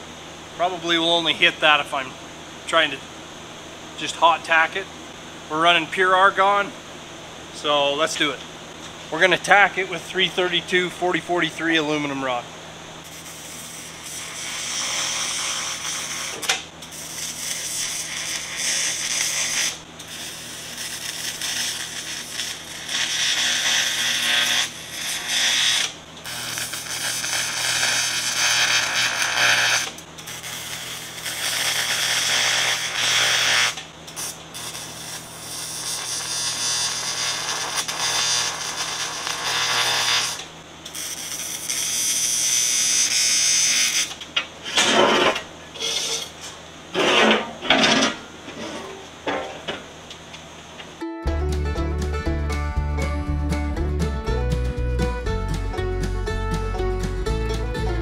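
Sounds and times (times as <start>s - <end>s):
welding arc buzzing and hissing: 13.0s - 47.4s.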